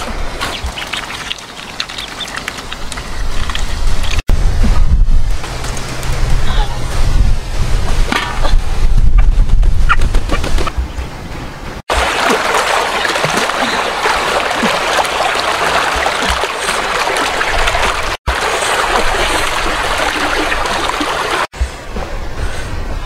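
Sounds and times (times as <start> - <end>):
rush of running water: 0.0 - 4.2, 11.7 - 23.0.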